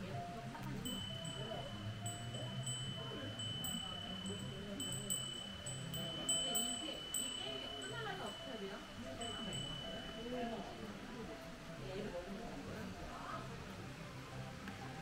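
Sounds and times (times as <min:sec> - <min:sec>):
wind chimes ringing: 0:00.5 - 0:11.4.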